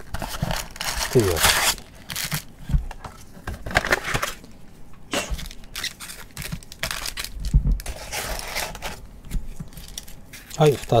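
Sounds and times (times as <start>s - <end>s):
foil wrappers crinkling: 0.0s - 2.5s, 5.3s - 9.0s, 9.6s - 11.0s.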